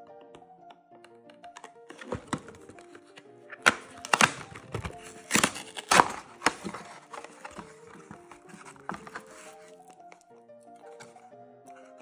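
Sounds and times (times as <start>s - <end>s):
light background music: 0.0s - 12.0s
cardboard box tearing: 1.9s - 9.8s.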